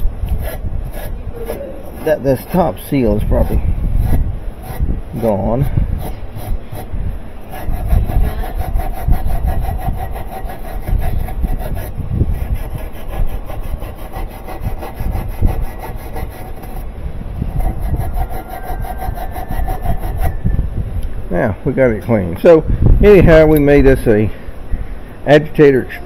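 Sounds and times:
tool scrubbing plastic tub: 0:00.3 - 0:06.9, 0:07.5 - 0:16.9.

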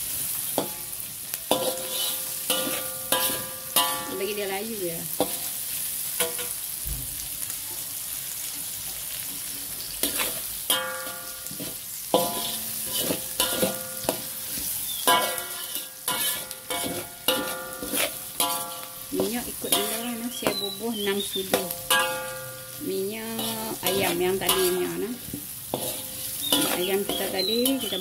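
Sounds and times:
food sizzling in hot oil: 0:00.0 - 0:28.0
metal spatula scraping a wok: 0:00.5 - 0:04.4, 0:10.0 - 0:28.0.

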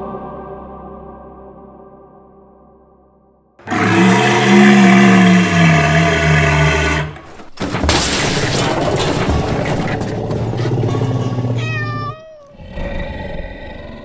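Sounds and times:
cat-like yowl: 0:03.6 - 0:07.2, 0:10.4 - 0:14.0.

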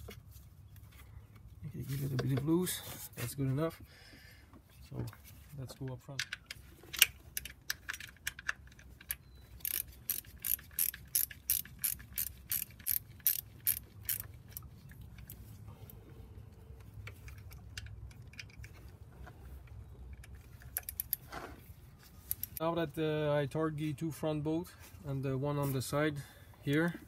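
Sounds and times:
ratcheting wrench clicking: 0:06.2 - 0:14.6.

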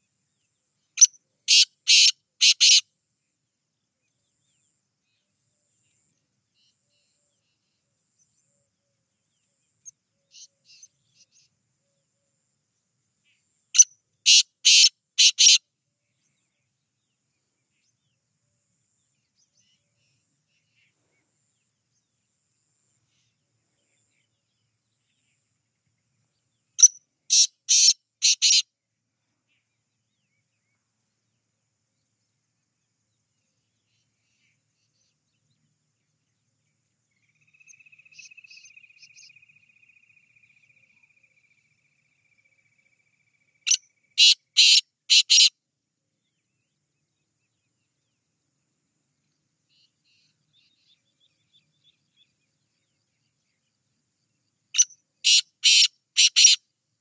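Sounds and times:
bird calling with harsh strokes: 0:55.3 - 0:56.6.

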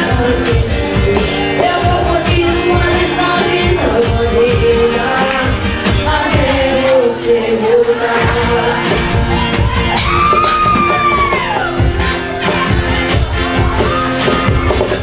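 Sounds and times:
boy singing into a microphone: 0:00.0 - 0:09.0
acoustic guitar: 0:00.0 - 0:15.0
steady beat: 0:00.0 - 0:15.0.

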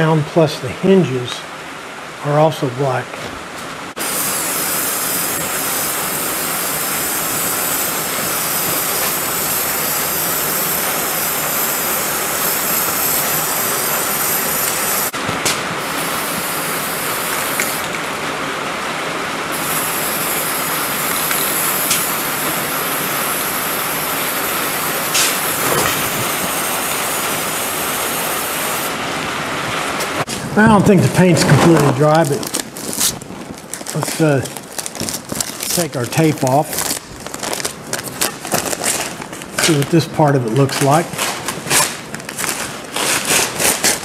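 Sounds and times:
spray paint can hissing: 0:04.0 - 0:15.2, 0:15.8 - 0:18.0, 0:19.5 - 0:29.0.

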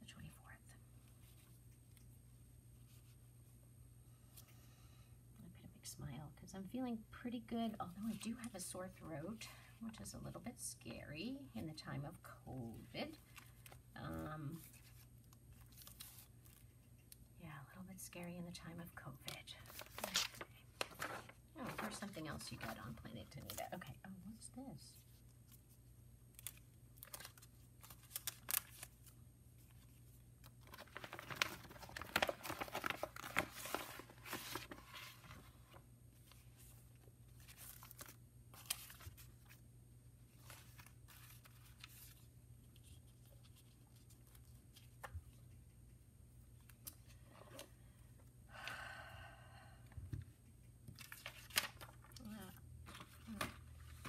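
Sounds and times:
paper rustling and crinkling: 0:13.0 - 0:17.2, 0:19.5 - 0:23.8, 0:26.3 - 0:39.6, 0:40.3 - 0:45.5, 0:50.9 - 0:54.0.

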